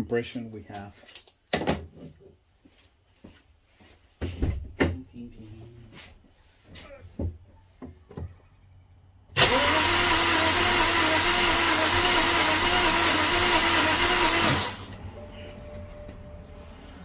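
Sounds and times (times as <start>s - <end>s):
starter motor cranking engine: 9.3s - 15.0s.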